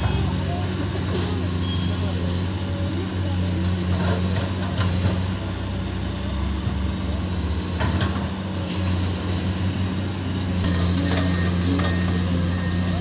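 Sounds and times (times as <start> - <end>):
excavator diesel engine running: 0.0 - 13.0.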